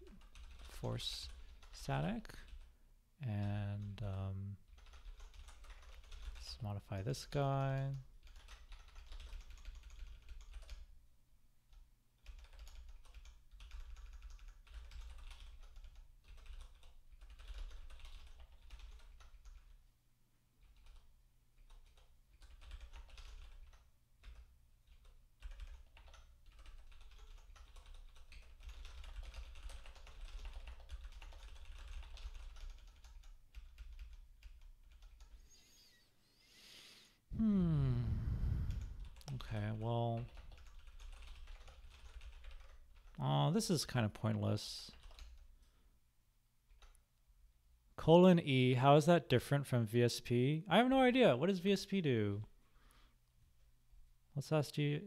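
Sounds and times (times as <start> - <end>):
typing on computer keyboard: 0.0 - 2.7, 4.7 - 6.6, 7.8 - 10.9, 11.7 - 19.8, 20.6 - 35.4, 38.7 - 39.4, 40.2 - 43.2, 44.9 - 45.5, 46.7 - 47.0.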